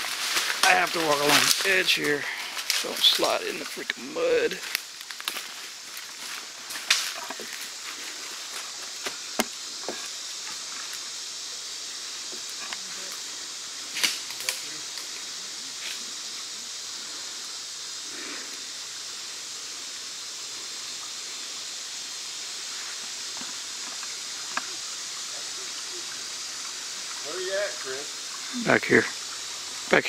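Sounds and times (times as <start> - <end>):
footsteps through leaf litter: 0.0 - 9.2
high-pitched hiss: 0.0 - 30.0
sharp snaps: 13.9 - 15.1.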